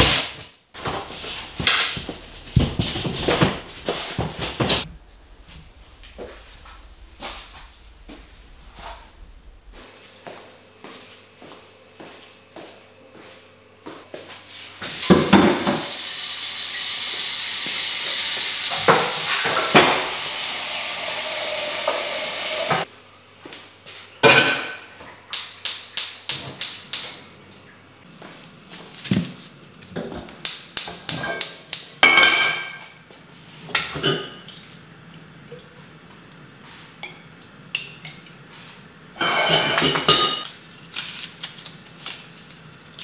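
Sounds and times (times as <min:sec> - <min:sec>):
steady hiss: 0:00.8 - 0:11.8, 0:14.4 - 0:22.9
pots and pans clinking: 0:39.2 - 0:40.5.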